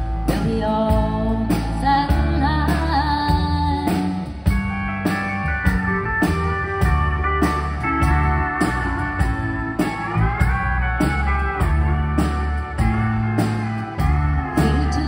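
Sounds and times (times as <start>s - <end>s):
country band playing: 0.0s - 15.0s
steady drum beat: 0.0s - 15.0s
woman singing: 0.2s - 4.3s, 14.5s - 15.0s.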